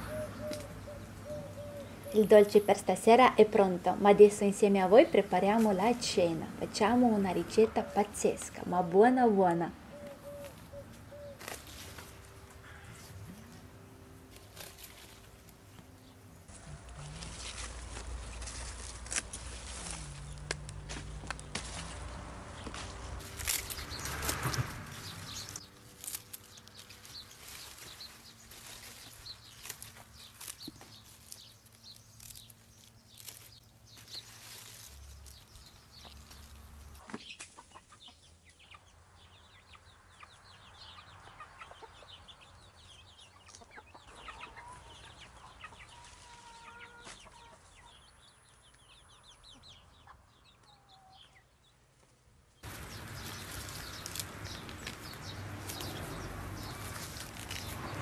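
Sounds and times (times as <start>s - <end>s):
small birds chirping: 0.0s - 13.6s, 17.2s - 58.0s
chickens clucking: 36.0s - 51.5s.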